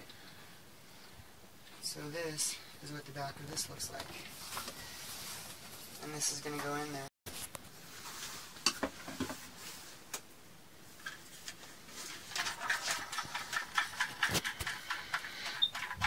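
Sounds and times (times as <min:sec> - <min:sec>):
plastic parts clicking and knocking: 0:12.3 - 0:16.0.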